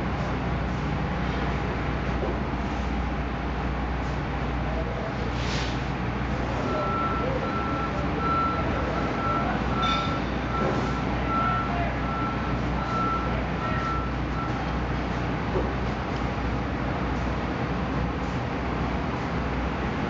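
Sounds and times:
reversing alarm beeping: 6.6s - 14.7s.

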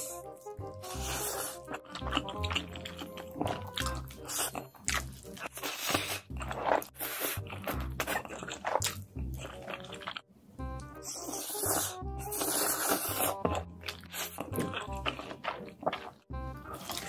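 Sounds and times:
person slurping and chewing noodles: 0.0s - 10.2s, 10.8s - 17.0s.

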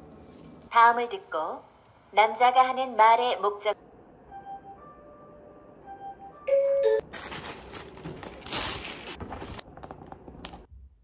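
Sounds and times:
soft background music: 4.2s - 7.0s
plastic wrap crinkling: 7.0s - 10.3s.

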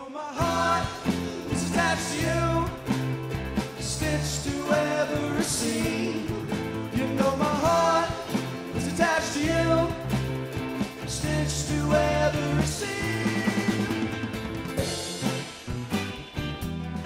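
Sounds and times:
person singing: 0.0s - 3.1s, 3.8s - 10.2s, 10.9s - 14.3s
bass guitar: 0.4s - 17.0s
drum kit: 0.4s - 17.0s
electric guitars: 0.4s - 17.0s
strummed acoustic guitar: 0.4s - 17.0s.

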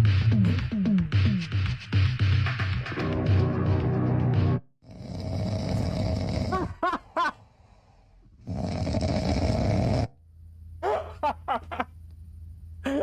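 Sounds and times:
dog snoring: 4.8s - 6.7s, 8.4s - 10.2s.

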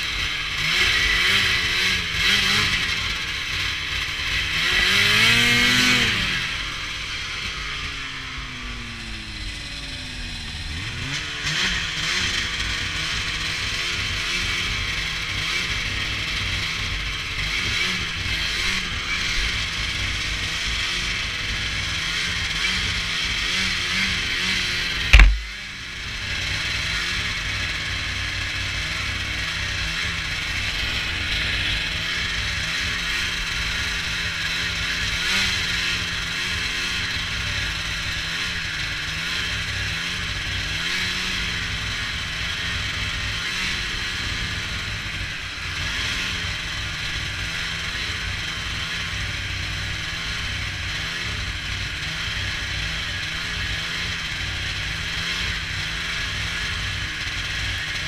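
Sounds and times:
snowmobile engine running: 0.0s - 58.0s
loud thump: 25.1s - 25.6s.

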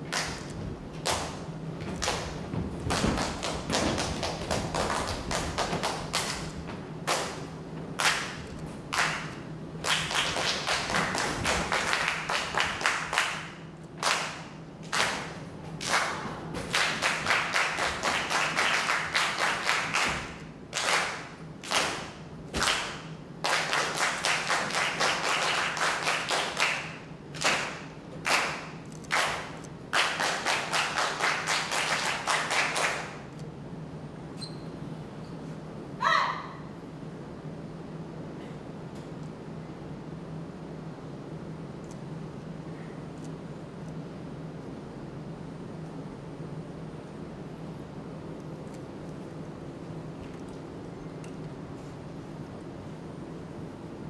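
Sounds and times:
low steady hum: 0.0s - 54.0s
rhythmic hand claps and thumps: 0.1s - 33.2s.

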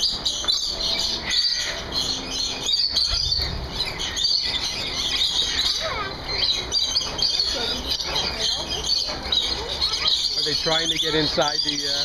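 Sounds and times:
parrots chattering: 0.0s - 12.0s.

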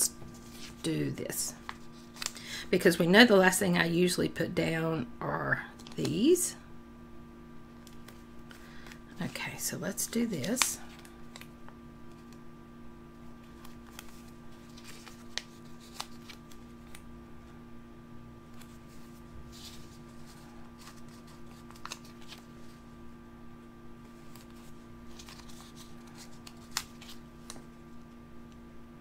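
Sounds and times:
low electrical hum: 0.0s - 29.0s
paper rustling: 0.2s - 0.9s, 13.4s - 17.0s, 18.5s - 22.8s, 24.1s - 27.7s.

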